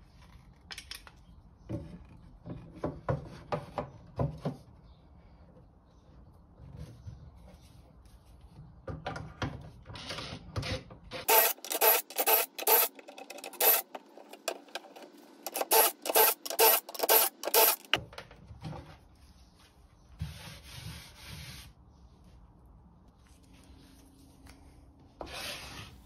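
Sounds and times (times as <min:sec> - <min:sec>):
cordless drill drilling into wood: 0:11.2 - 0:13.8, 0:15.4 - 0:18.0.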